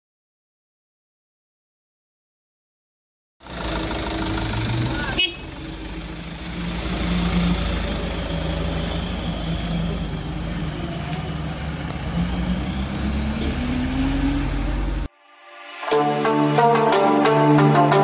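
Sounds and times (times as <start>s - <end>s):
diesel truck engine pulling away: 3.4s - 15.1s.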